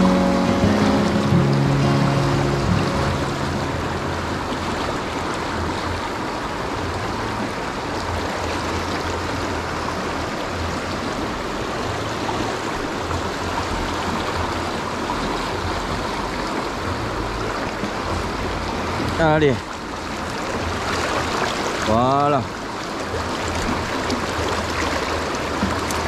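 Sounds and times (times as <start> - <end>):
low rumble: 0.0 - 7.4
river water rushing: 0.0 - 26.0.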